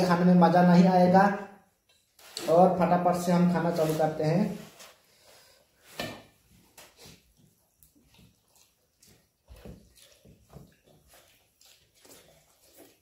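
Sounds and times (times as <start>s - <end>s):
people eating with hands: 4.9s - 13.0s.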